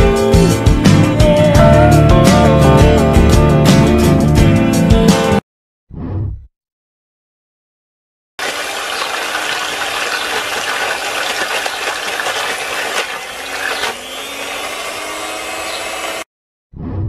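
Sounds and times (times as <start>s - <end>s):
water and mud splashing: 8.4s - 14.9s
electric hand mixer motor hum: 8.4s - 16.3s.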